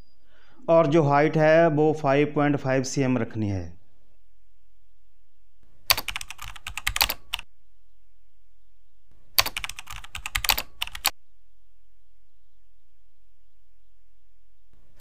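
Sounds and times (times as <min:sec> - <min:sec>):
typing on computer keyboard: 0:05.9 - 0:07.5, 0:09.4 - 0:11.1.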